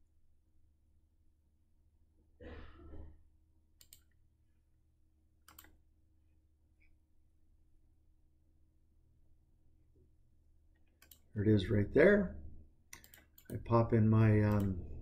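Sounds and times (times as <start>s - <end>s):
computer mouse clicking: 3.8s - 4.2s, 5.4s - 5.8s, 10.8s - 11.3s, 12.9s - 13.7s, 14.4s - 14.8s.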